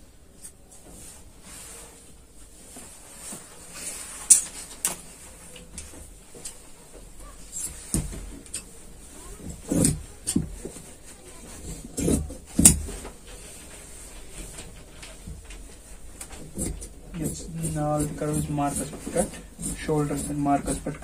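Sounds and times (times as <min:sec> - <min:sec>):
shears snipping cloth: 0:16.4 - 0:21.0.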